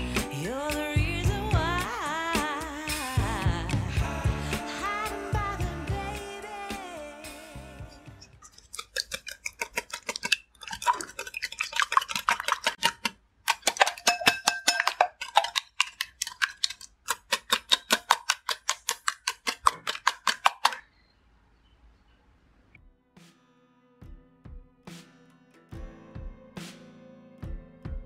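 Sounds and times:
whisk clinking against glass bowl: 0:08.4 - 0:20.8.

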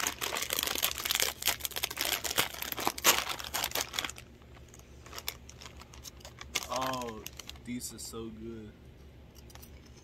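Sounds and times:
plastic bag crinkling and tearing: 0:00.0 - 0:08.0.

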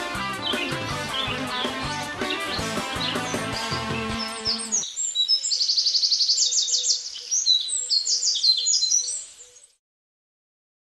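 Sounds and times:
guitar music: 0:00.0 - 0:04.8
birds chirping high-pitched: 0:00.1 - 0:09.8.

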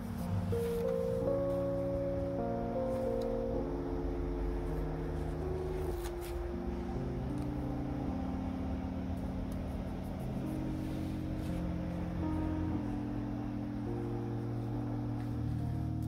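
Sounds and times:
soft background music chords: 0:00.0 - 0:16.0.

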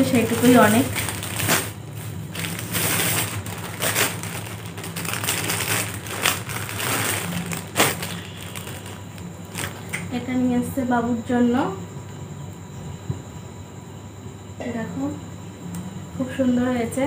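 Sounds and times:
clothes wrapping rustling and crackling: 0:00.0 - 0:10.0.

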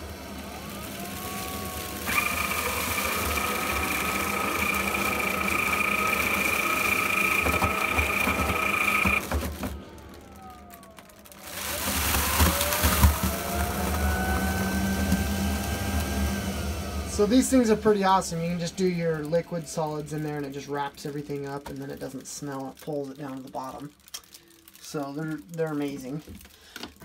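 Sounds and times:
toilet motor whine: 0:00.0 - 0:20.9
whine rising in pitch: 0:00.0 - 0:21.4.

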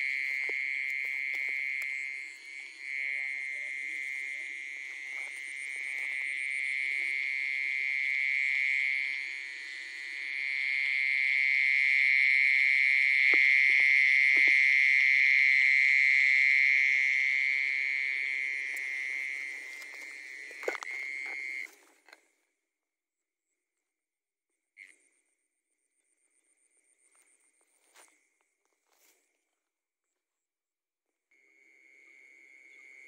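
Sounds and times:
frogs trilling: 0:00.0 - 0:22.2.

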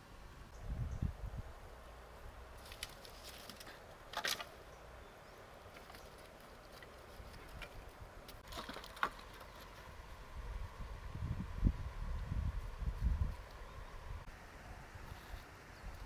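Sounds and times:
sticks cracking and rustling: 0:02.5 - 0:04.6, 0:05.6 - 0:09.8.

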